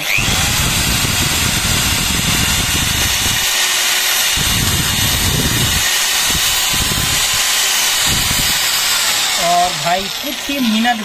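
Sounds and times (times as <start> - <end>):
electric drill boring into wood: 0.0 - 11.0.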